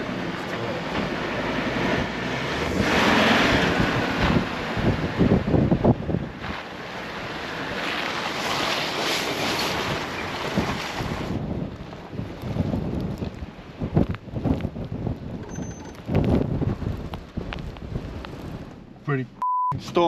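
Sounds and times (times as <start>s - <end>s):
vehicle driving on snowy road: 0.0s - 20.0s
wind buffeting microphone: 1.0s - 6.6s, 9.7s - 18.9s.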